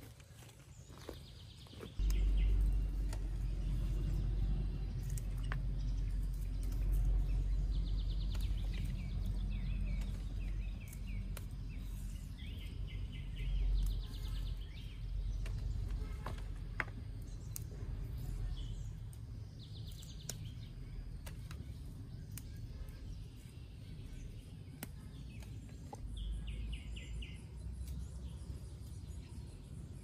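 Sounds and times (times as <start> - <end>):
birds trilling: 0.8 - 30.0
green beans snapping: 2.0 - 18.4, 19.0 - 23.2, 24.6 - 26.0
low rumble: 2.0 - 24.6.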